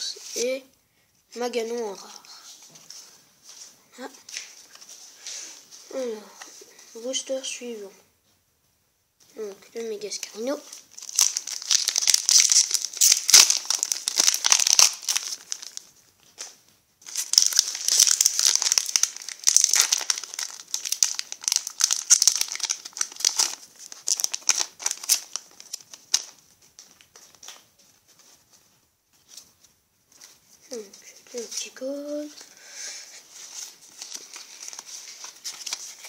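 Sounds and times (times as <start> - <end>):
foil pack crinkling and tearing: 10.7 - 15.9, 17.1 - 27.6, 33.4 - 36.0.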